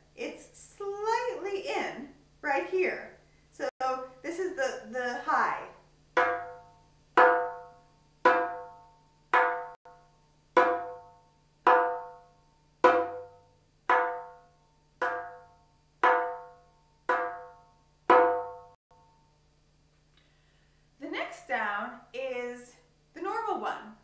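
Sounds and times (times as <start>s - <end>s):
hand drum strokes: 10.6s - 14.4s, 15.0s - 19.1s.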